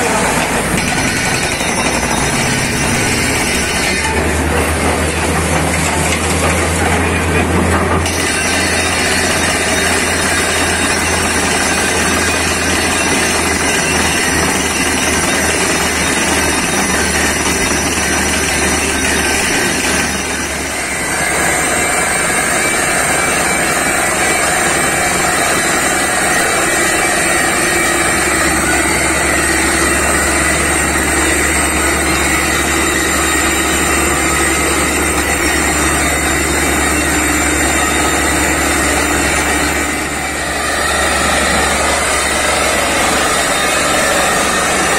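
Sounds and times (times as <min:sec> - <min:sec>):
drilling rig engine running: 0:00.0 - 0:44.9.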